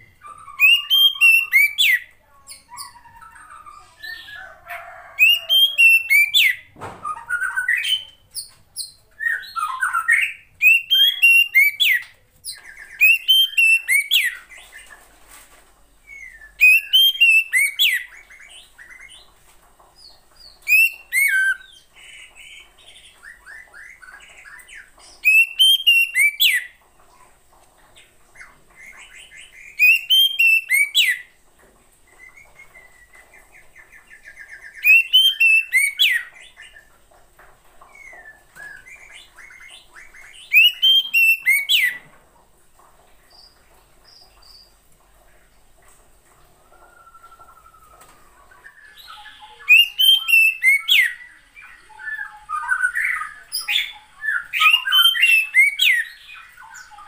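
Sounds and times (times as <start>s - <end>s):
bird whistled calls: 0.2s - 2.1s, 5.2s - 8.0s, 9.3s - 12.0s, 12.9s - 14.4s, 16.2s - 18.1s, 20.7s - 21.7s, 25.2s - 26.7s, 29.8s - 31.2s, 34.7s - 36.3s, 40.5s - 42.0s, 48.7s - 51.2s.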